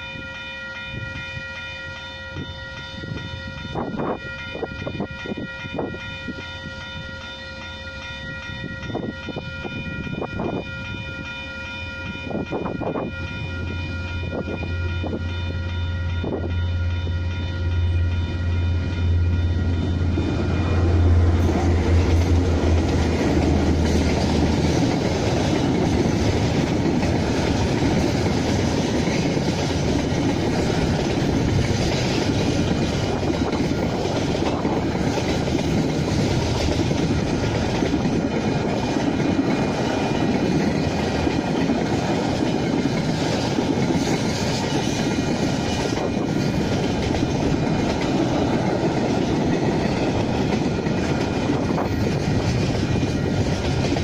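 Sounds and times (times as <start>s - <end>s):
diesel locomotive engine drone: 0.0s - 54.0s
train wheels running on rails: 0.0s - 54.0s.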